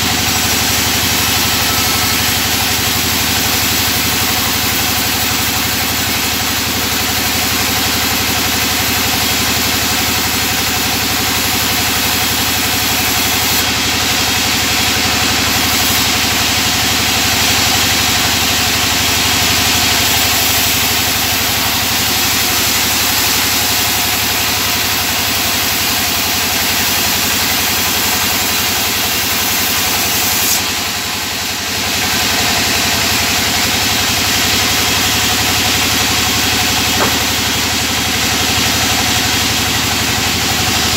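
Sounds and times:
saw blade hiss: 0:00.0 - 0:40.9
sawmill machine drone: 0:00.0 - 0:40.9.

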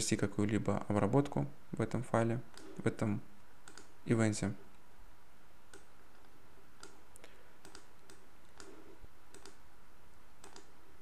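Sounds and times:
faint steady hiss: 0:00.0 - 0:11.0
computer mouse clicking: 0:02.5 - 0:02.8, 0:03.6 - 0:04.0, 0:05.7 - 0:09.6, 0:10.4 - 0:10.8.

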